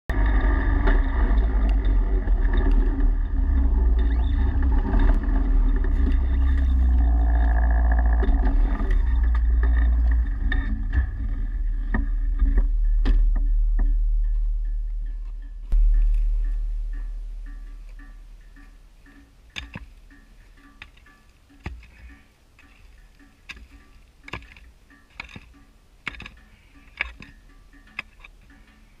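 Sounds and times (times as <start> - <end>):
small vehicle engine running: 0.1 - 14.0
low rumble on camera: 0.1 - 19.0
sharp knocks and clicks: 0.1 - 28.7.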